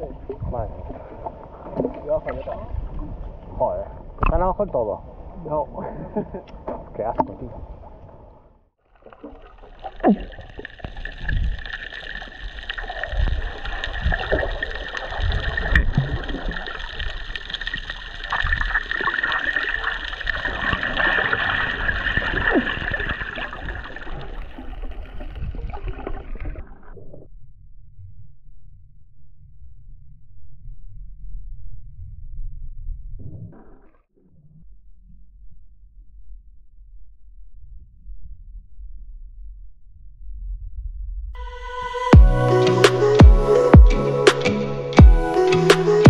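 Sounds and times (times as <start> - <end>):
water splashing and gurgling: 0.0 - 4.5, 6.6 - 27.3.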